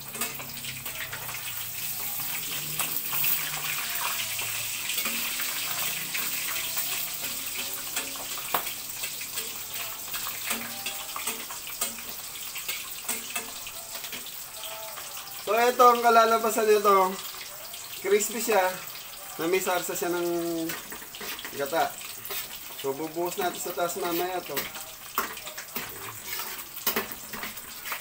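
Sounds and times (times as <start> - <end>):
tongs clicking against pan: 0.0 - 15.2, 20.5 - 28.0
fish sizzling in hot oil: 0.0 - 28.0.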